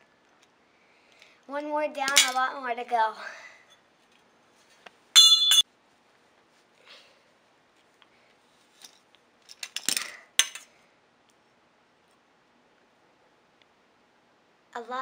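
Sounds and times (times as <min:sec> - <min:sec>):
ringing clink of copper: 0:05.2 - 0:05.6.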